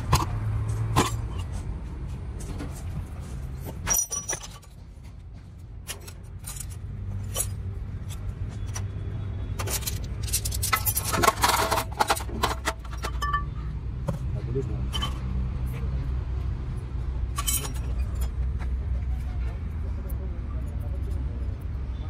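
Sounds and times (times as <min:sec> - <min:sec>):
metal parts clinking: 0:03.7 - 0:04.8, 0:05.8 - 0:08.9, 0:09.6 - 0:13.7, 0:14.9 - 0:15.3, 0:17.3 - 0:18.4.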